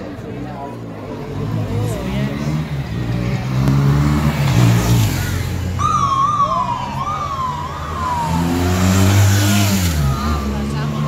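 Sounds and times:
motor engines running: 0:02.4 - 0:11.0
police siren wailing: 0:05.8 - 0:10.9.

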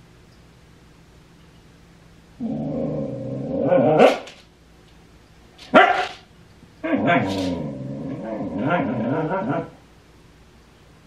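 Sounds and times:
puppy barking: 0:04.0 - 0:04.4, 0:05.7 - 0:06.2.

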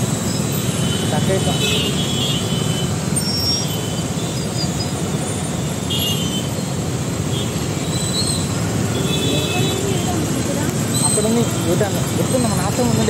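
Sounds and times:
traffic engines rumbling: 0:00.0 - 0:13.0.

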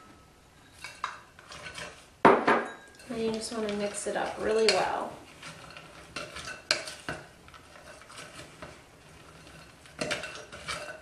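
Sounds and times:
spoon stirring in glass bowl: 0:00.6 - 0:11.0
spoon knocking against glass: 0:02.3 - 0:03.0.

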